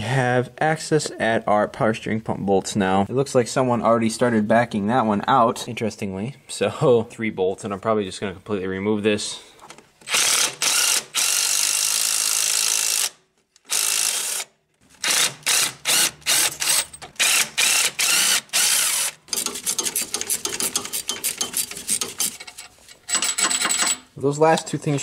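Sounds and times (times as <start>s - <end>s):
power ratchet running: 10.1s - 22.4s
ratchet clicks: 15.6s - 24.0s.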